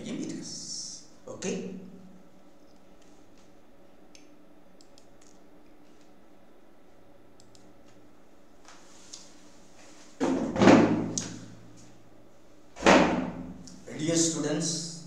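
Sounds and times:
faint mouse clicks: 0:04.1 - 0:06.1, 0:07.4 - 0:08.0
loud thud: 0:12.8 - 0:13.5.

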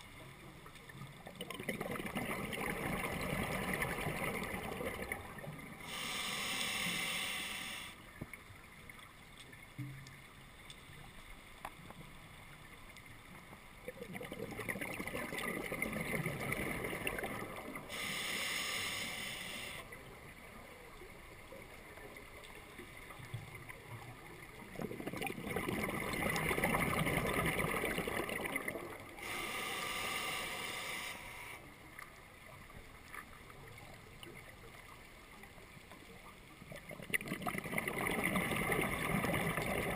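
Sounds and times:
hissing regulator inhales: 0:05.8 - 0:08.0, 0:17.9 - 0:19.9, 0:29.2 - 0:31.7
bubbling exhales: 0:14.0 - 0:19.8, 0:24.7 - 0:31.5, 0:37.0 - 0:39.9.

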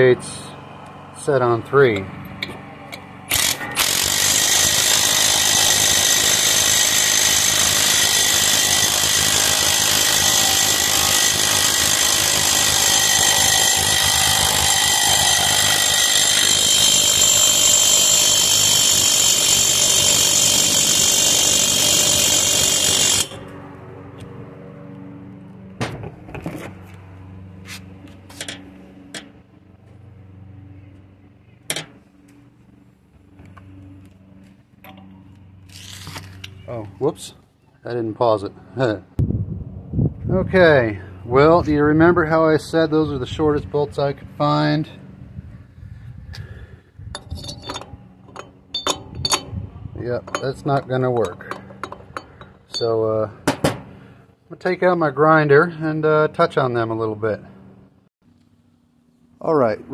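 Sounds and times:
impact wrench hammering: 0:02.4 - 0:23.4, 0:47.2 - 0:49.6, 0:50.2 - 0:53.9.

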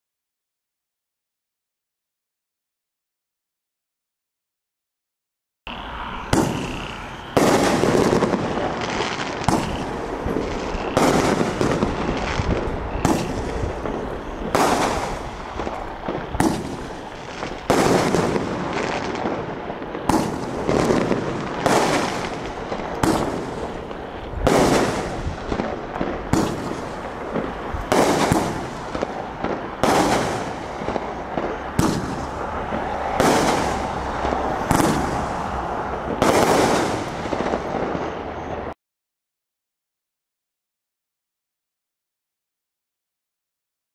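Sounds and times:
firework bangs: 0:06.2 - 0:38.7.

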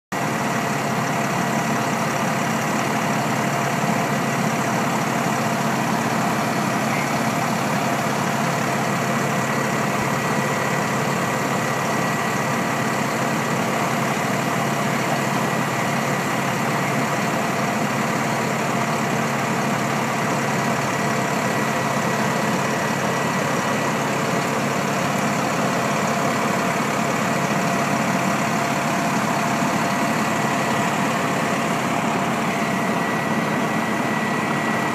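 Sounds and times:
fire engine idling: 0:00.1 - 0:34.9
constant high whine: 0:00.2 - 0:34.9.

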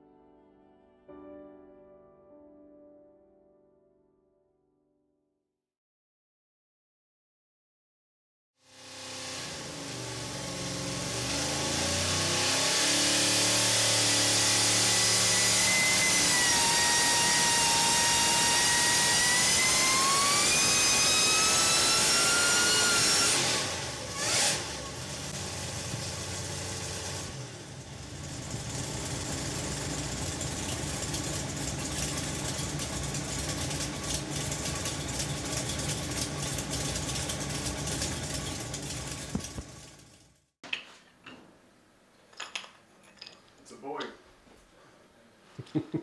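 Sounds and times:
engine high whine: 0:08.7 - 0:40.4
low engine running: 0:23.3 - 0:40.5.

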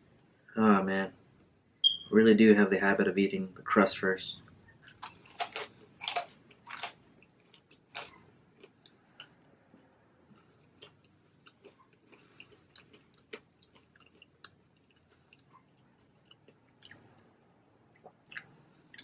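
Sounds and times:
crunchy pizza chewing: 0:04.7 - 0:17.1.

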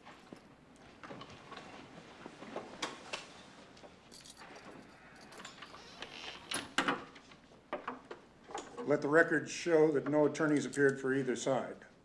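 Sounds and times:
handcuffs clinking: 0:04.1 - 0:05.9.

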